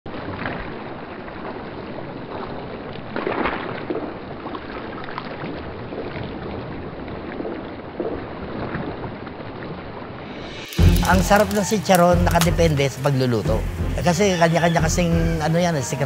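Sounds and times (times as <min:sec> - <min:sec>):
metal strainer stirring: 0:10.4 - 0:12.6.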